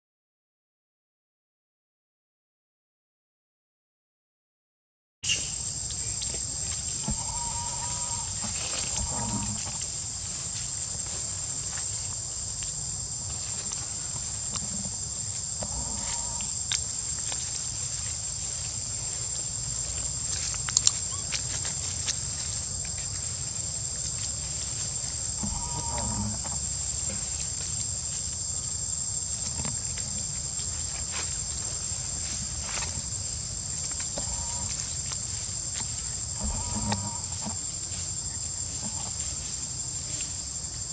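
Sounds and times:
insects droning: 5.2s - 40.9s
short animal calls: 7.0s - 9.6s, 25.4s - 26.5s, 36.4s - 37.3s.

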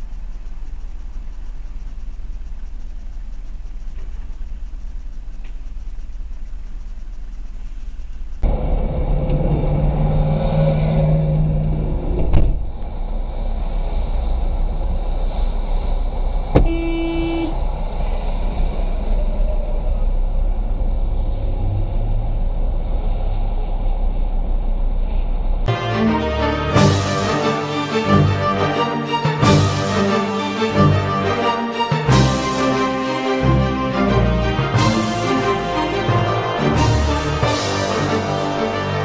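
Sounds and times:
car engine and road noise: 0.0s - 39.0s
short steady tone: 16.6s - 17.6s.

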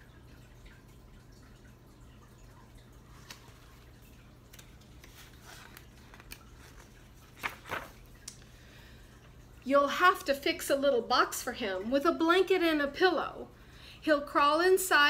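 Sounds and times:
paper pages rustling: 3.1s - 8.2s.

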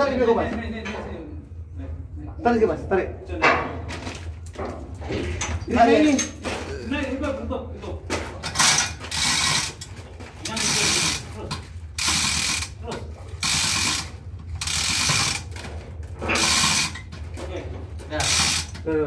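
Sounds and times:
chain hoist ratcheting rattle: 8.4s - 19.0s.

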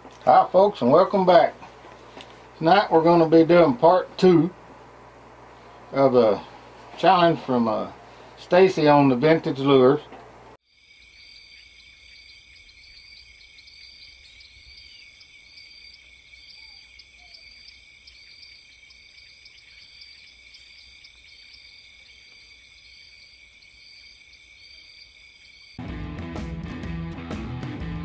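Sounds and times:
insect chirping: 10.6s - 25.8s
insect chorus trilling: 10.6s - 25.8s.

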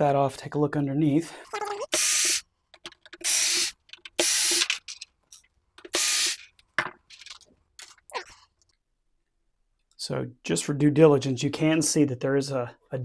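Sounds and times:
electric screwdriver whirring: 3.2s - 4.7s, 5.9s - 6.4s.

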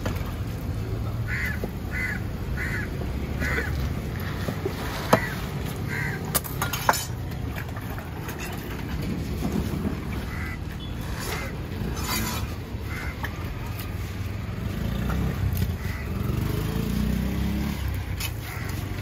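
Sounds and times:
road traffic rumble: 0.0s - 19.0s
crow cawing: 1.2s - 3.8s, 5.2s - 6.3s, 10.3s - 10.6s, 12.8s - 13.3s, 15.7s - 16.4s, 18.4s - 18.9s.

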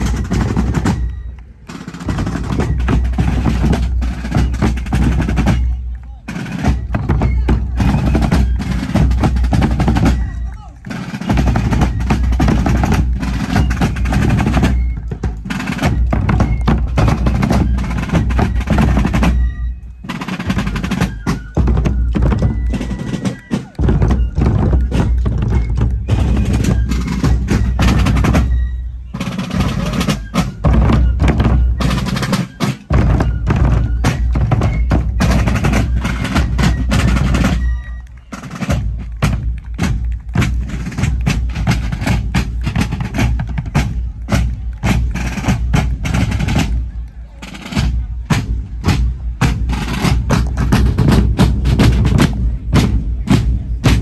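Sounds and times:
snare drums marching beat: 0.0s - 54.0s
bass drums: 47.7s - 54.0s.

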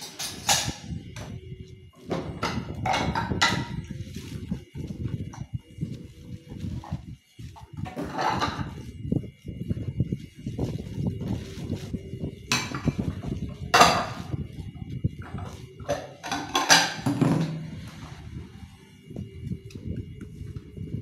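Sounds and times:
sponge scrubbing dishes: 1.9s - 9.0s
dishes clattering together: 2.1s - 3.8s, 7.9s - 8.8s, 13.7s - 14.4s, 15.3s - 17.6s.

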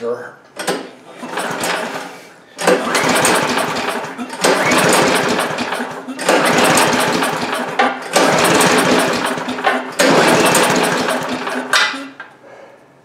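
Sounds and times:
engine cranked by pull cord: 0.6s - 12.1s.

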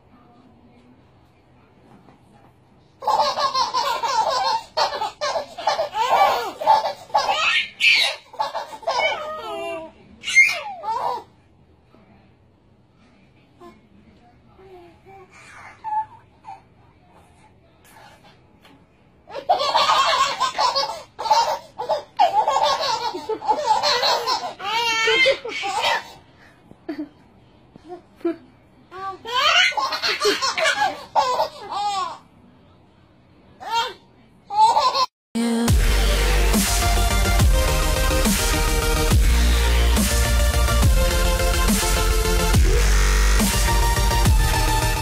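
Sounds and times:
babies laughing: 3.0s - 11.4s, 19.3s - 26.4s, 29.0s - 32.2s.

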